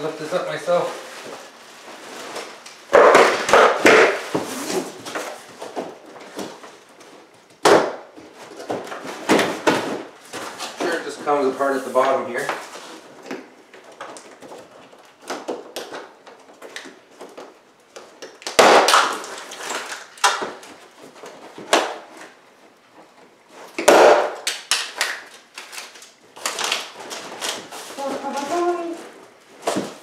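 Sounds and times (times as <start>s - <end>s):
cardboard scraping and rubbing: 1.0s - 5.5s.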